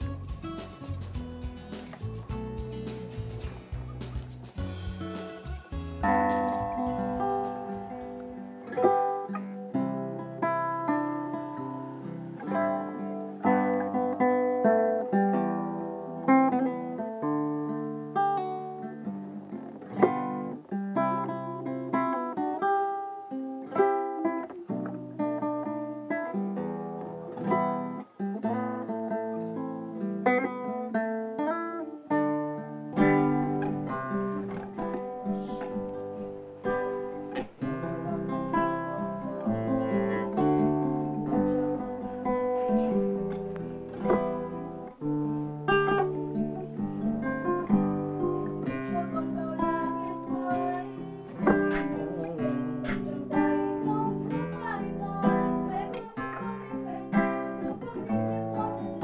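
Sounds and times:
bass part: 0.0s - 7.9s
classical guitar strummed and picked: 0.0s - 59.0s
man singing: 37.6s - 40.7s, 48.6s - 54.4s.

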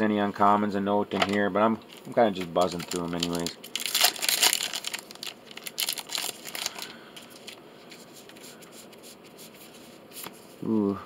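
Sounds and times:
cards rustling: 1.2s - 11.0s
wrapper crinkling: 1.9s - 7.6s.

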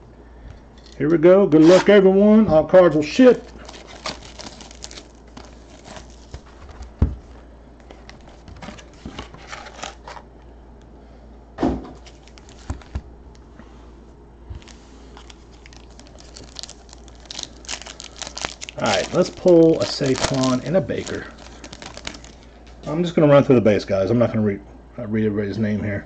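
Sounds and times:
cardboard and foil crinkling: 3.0s - 10.2s, 12.0s - 13.0s, 14.6s - 23.0s.

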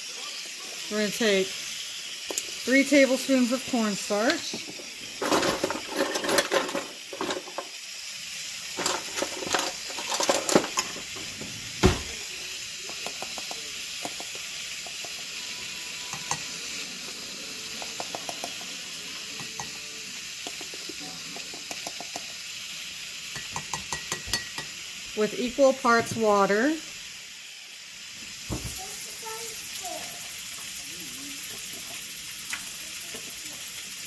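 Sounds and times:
steam hissing from valve: 0.0s - 34.0s
spoon clinking in ceramic mug: 19.4s - 19.8s, 23.3s - 24.8s.

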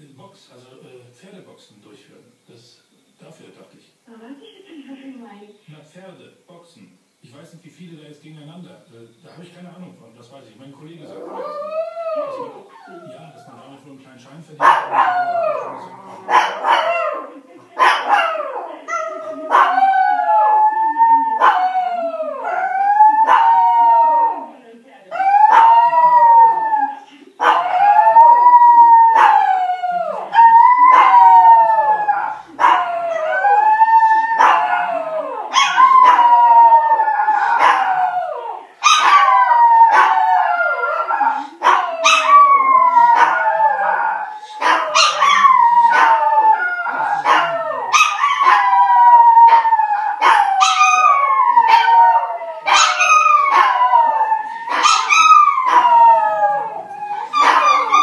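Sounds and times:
dogs howling: 11.0s - 13.8s, 14.6s - 58.0s.

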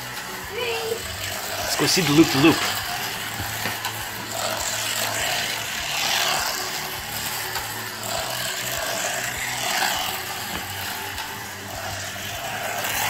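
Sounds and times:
slot cars whirring on track: 0.0s - 13.0s.

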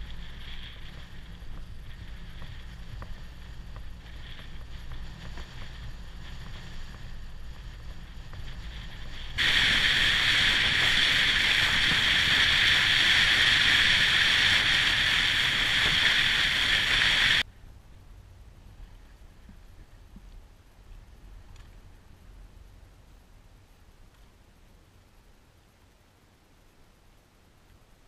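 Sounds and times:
rush of water and wind: 0.0s - 17.4s
low rumble of wind and water: 0.0s - 28.0s.

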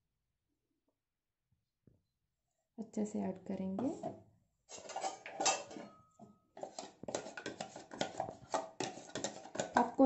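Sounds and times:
batter stirred in steel bowl: 3.7s - 5.8s, 6.5s - 10.0s.

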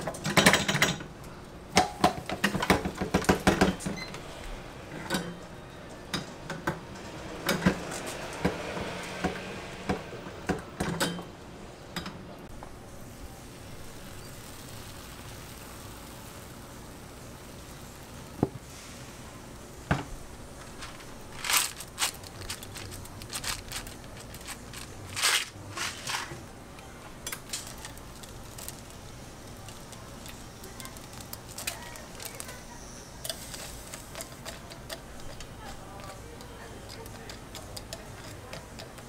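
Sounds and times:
steady background hiss: 9.5s - 36.4s
toppings rustling into pan: 20.1s - 26.5s, 27.2s - 36.2s.

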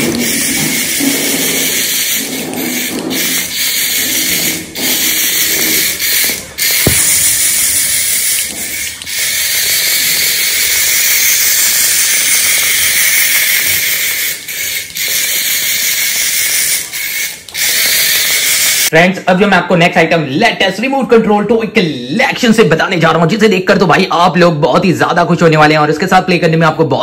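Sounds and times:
toy motor whirring: 0.0s - 18.9s.

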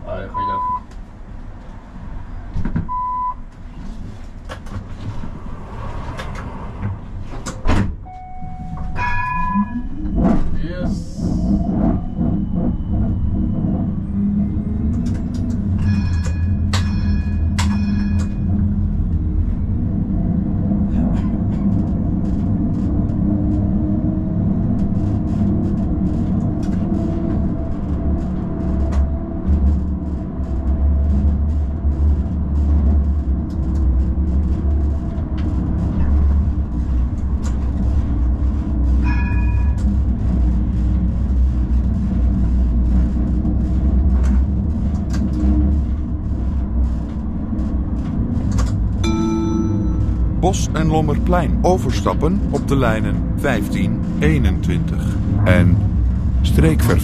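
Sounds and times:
tram rumbling on rails: 0.0s - 57.0s
tram bell ringing: 8.0s - 10.3s, 15.7s - 19.0s, 39.0s - 39.9s, 49.0s - 51.6s.

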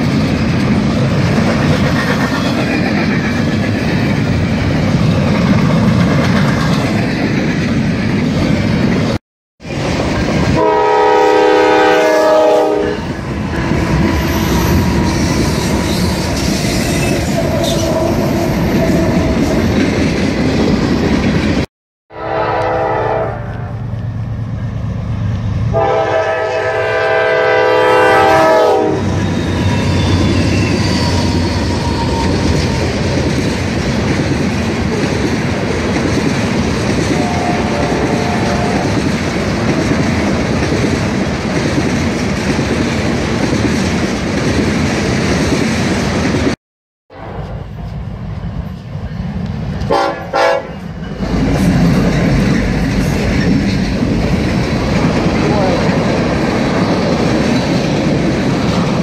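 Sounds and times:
train horn: 10.6s - 13.2s, 22.1s - 23.9s, 25.7s - 29.2s, 37.1s - 39.0s, 49.9s - 50.9s
freight cars rumbling and clacking: 50.8s - 59.0s.

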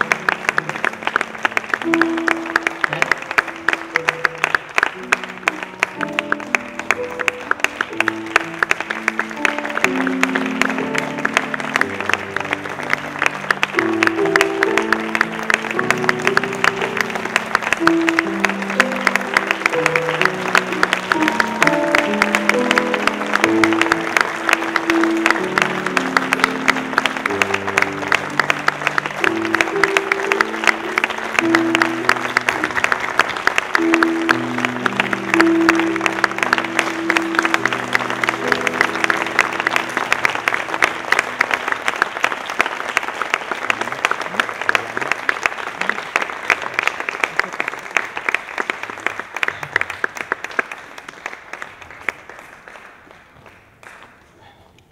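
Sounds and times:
slow instrumental music: 0.0s - 49.8s
audience applauding: 0.0s - 54.5s.

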